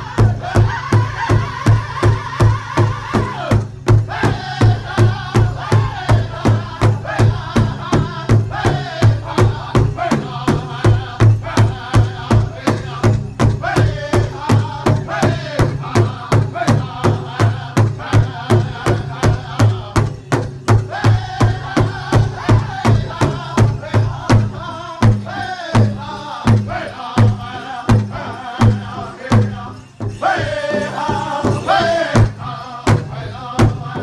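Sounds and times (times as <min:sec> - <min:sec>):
group singing in high voices: 0:00.0 - 0:34.0
large drum beating: 0:00.0 - 0:34.0.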